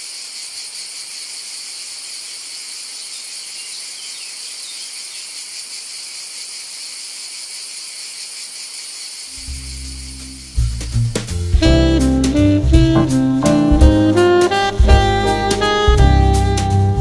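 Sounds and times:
insect chorus buzzing: 0.0s - 17.0s
low musical note: 11.6s - 17.0s.

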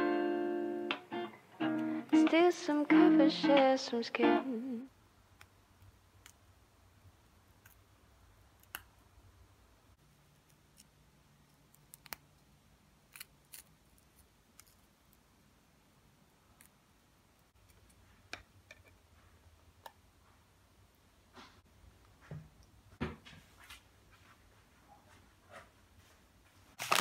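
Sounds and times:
cookies crumbling crackles: 26.8s - 27.0s.

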